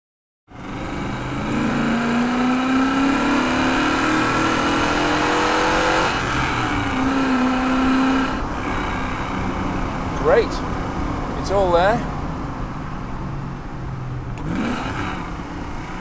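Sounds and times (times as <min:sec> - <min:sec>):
car engine accelerating: 0:00.5 - 0:10.6, 0:14.2 - 0:16.0.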